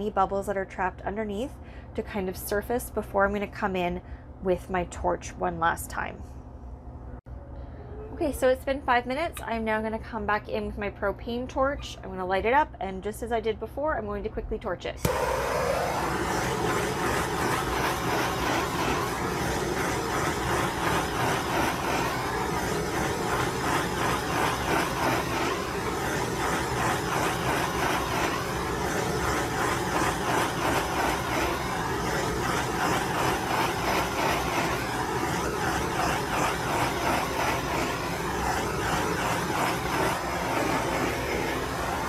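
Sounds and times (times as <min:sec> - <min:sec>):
propane torch hissing: 0:15.0 - 0:42.0.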